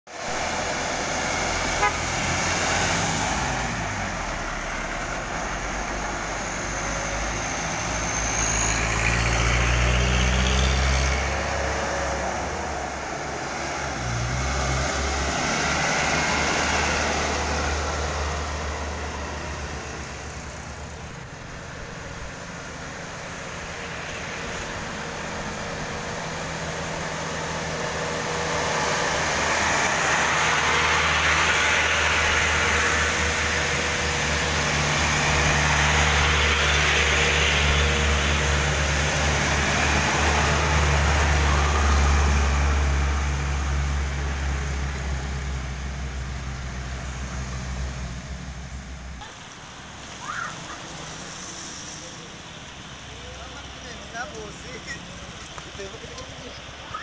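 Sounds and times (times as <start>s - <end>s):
diesel trucks driving past: 0.1s - 57.0s
horn toot: 1.7s - 2.2s.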